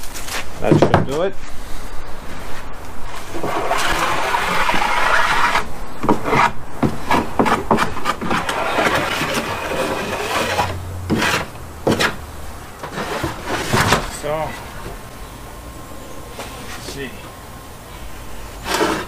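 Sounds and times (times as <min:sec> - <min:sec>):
sandpaper rubbing on wood: 0:03.2 - 0:12.2.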